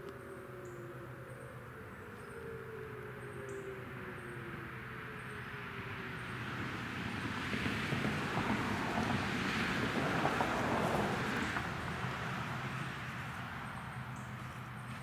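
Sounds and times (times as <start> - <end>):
vehicle driving past: 3.5 - 15.0.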